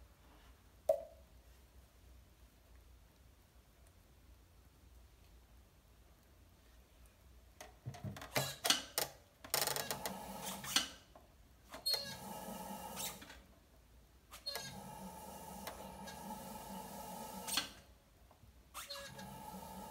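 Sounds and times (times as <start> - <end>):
pottery wheel motor whirring: 14.5 - 17.8, 19.0 - 19.9.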